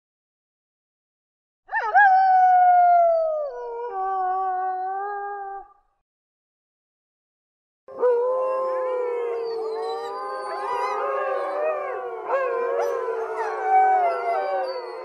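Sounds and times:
wolves howling in chorus: 7.9 - 15.0.

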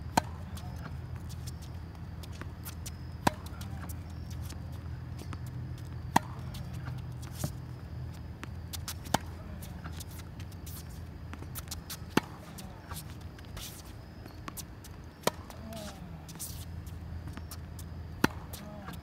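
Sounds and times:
steady low hum: 0.0 - 19.0
racket hitting tennis ball: 0.1 - 1.6, 2.4 - 4.6, 6.0 - 7.6, 8.7 - 13.8, 14.4 - 19.0
tennis ball bouncing: 0.1 - 19.0.

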